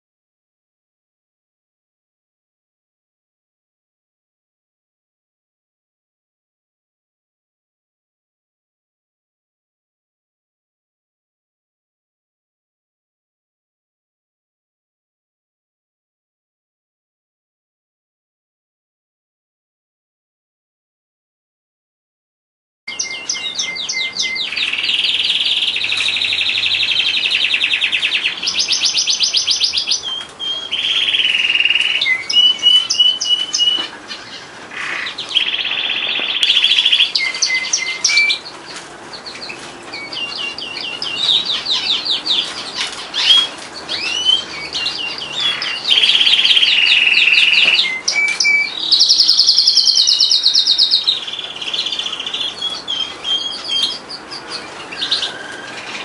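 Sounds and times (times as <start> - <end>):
canary singing trills: 22.9 - 56.0.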